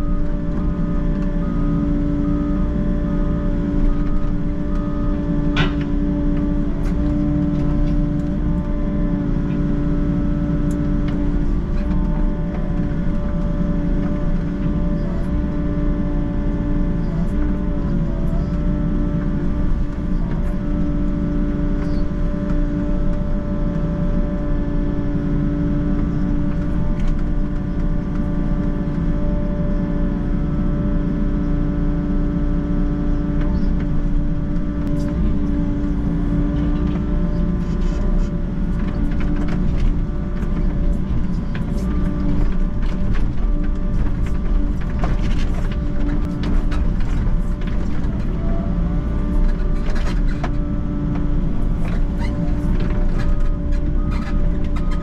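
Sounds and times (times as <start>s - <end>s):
steady whine: 0.0s - 25.3s
excavator diesel engine running: 0.0s - 55.0s.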